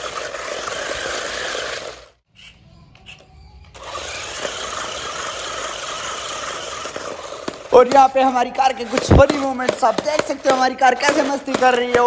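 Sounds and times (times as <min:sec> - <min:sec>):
toy car electric motors whirring: 0:00.0 - 0:02.2, 0:02.9 - 0:11.8.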